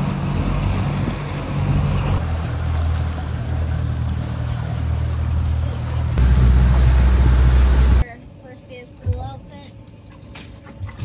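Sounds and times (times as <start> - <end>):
water noise: 0.0 - 8.0
outboard engine drone: 0.0 - 11.0
wind: 0.0 - 11.0.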